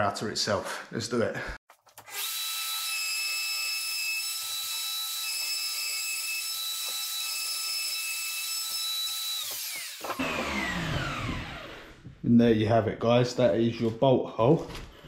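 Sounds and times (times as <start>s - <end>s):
router spinning down: 2.0s - 12.0s
router whining: 2.0s - 12.2s.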